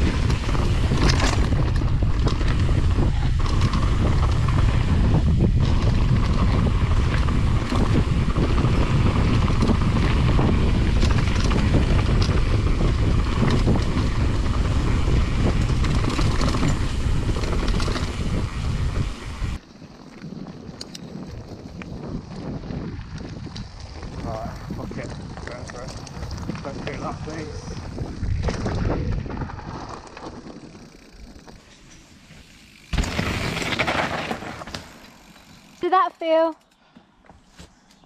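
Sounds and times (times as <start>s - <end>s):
bike knocks and rattles: 0.0s - 19.3s, 24.9s - 35.8s
wind buffeting microphone: 0.0s - 31.4s.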